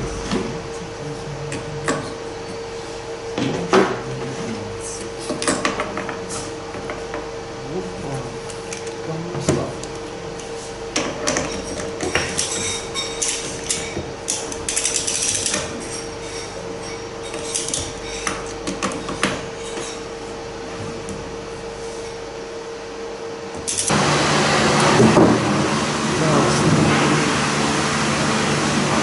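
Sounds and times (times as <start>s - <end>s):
steady background hum: 0.0s - 29.0s
metal parts clinking: 12.4s - 15.6s.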